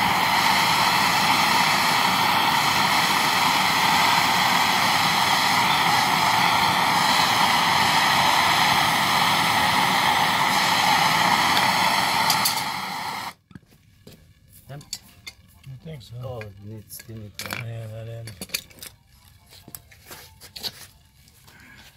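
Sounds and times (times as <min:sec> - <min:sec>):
gas torch flame burning: 0:00.0 - 0:13.4.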